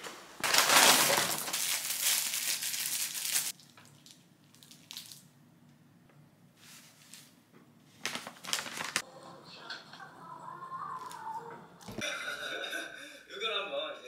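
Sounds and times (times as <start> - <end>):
paper bag crinkling: 0.4 - 5.2, 6.6 - 9.0.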